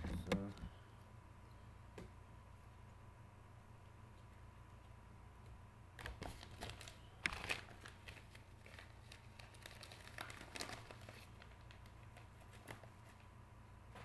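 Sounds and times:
crinkly packaging rustling: 6.0s - 13.3s.

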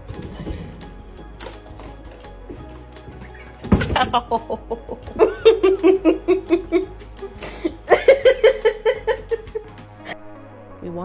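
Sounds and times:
person laughing: 3.8s - 10.2s.

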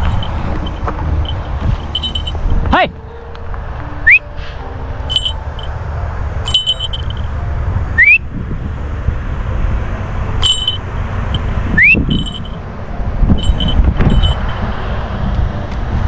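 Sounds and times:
clicks with ringing high tone: 0.0s - 2.4s, 6.4s - 7.3s, 13.4s - 14.6s
steady low rumble: 0.0s - 4.0s, 4.6s - 16.0s
rising recall whistle: 4.0s - 4.3s, 8.0s - 8.2s, 11.8s - 12.2s.

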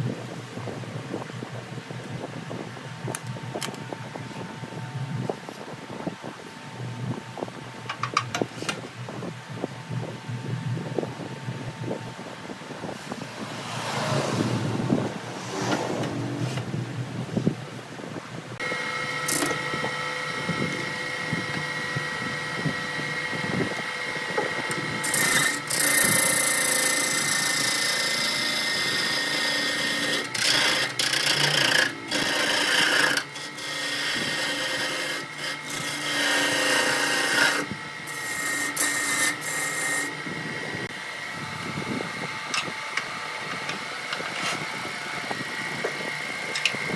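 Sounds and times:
gouge cutting wood: 18.6s - 40.2s
wood lathe humming: 18.6s - 46.9s.

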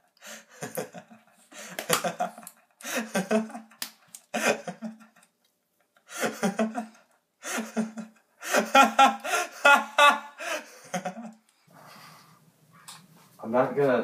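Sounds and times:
young man laughing loudly: 1.8s - 3.8s, 4.4s - 5.2s, 6.1s - 11.4s.

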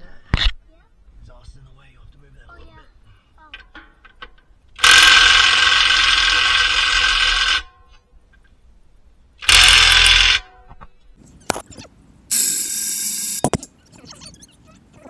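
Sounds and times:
cordless power wrench spinning: 4.8s - 7.7s, 9.4s - 10.4s, 12.3s - 13.6s.

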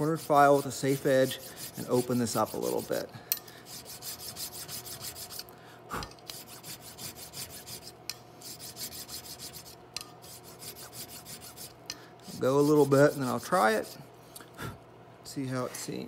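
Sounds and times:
file cutting steel: 0.0s - 3.0s, 3.7s - 5.5s, 6.3s - 14.0s.

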